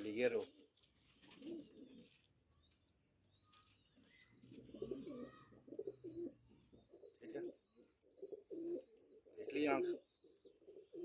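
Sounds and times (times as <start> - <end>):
pigeon cooing: 1.3 - 2.2, 3.6 - 11.0.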